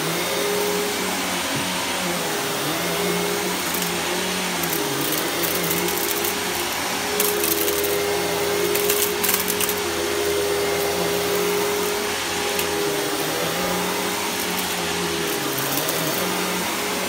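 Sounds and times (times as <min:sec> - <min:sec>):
vacuum cleaner on carpet: 0:00.0 - 0:17.0
crackling: 0:00.7 - 0:17.0.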